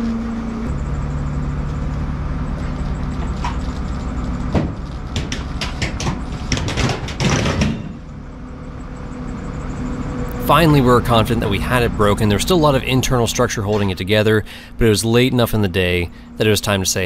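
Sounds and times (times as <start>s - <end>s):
forklift engine running: 0.0s - 17.0s
metal creaking and cracking: 13.3s - 14.3s.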